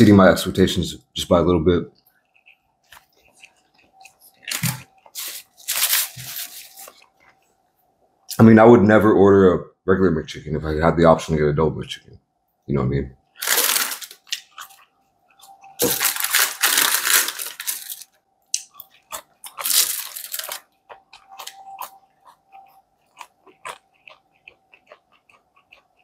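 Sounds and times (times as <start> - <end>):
crunching fries: 2.2 - 7.4, 13.4 - 26.0
chewing clicks: 20.4 - 26.0.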